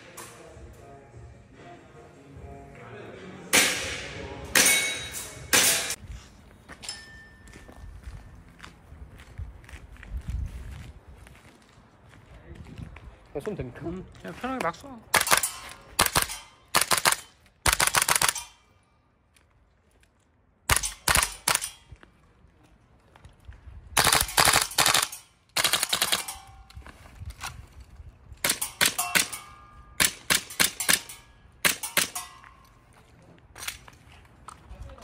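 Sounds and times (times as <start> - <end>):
airsoft rifle firing bursts: 16.0 - 18.4, 24.0 - 26.3.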